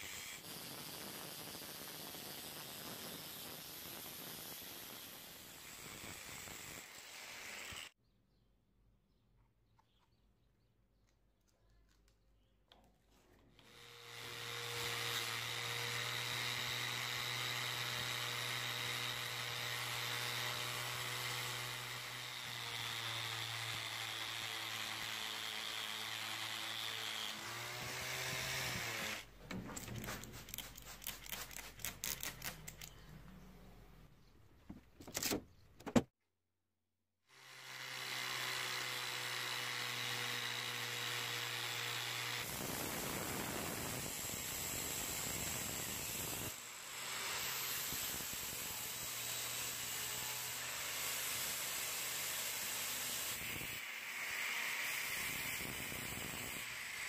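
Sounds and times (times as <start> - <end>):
angle grinder grinding steel: 13.6 - 33.0
sharp clicks and knocks: 29.3 - 33.4, 34.4 - 36.1.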